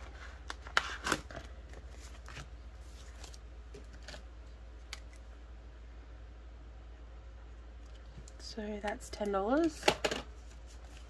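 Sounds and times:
plastic envelopes crinkling and clicking: 0:00.0 - 0:05.2.

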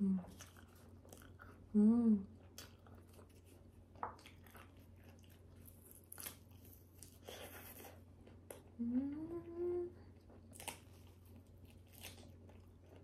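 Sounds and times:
soft chewing and mouth clicks: 0:00.2 - 0:13.0
person humming: 0:01.7 - 0:02.3, 0:08.8 - 0:10.1.

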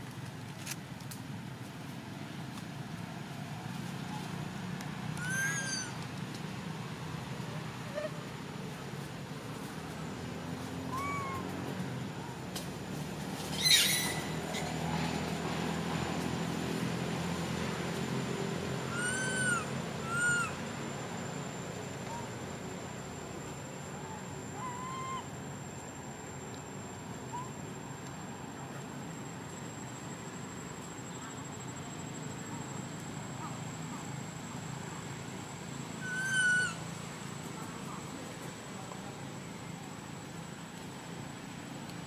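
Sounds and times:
young monkey crying call: 0:05.2 - 0:06.0, 0:10.9 - 0:11.5, 0:13.6 - 0:14.7, 0:18.8 - 0:20.6, 0:24.0 - 0:25.4, 0:27.3 - 0:27.6, 0:36.0 - 0:36.8.

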